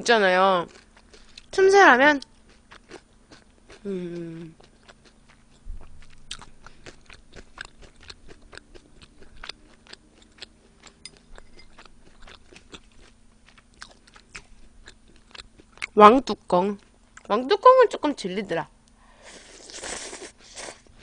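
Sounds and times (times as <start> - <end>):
chewing and crunching: 0.6 - 16.0.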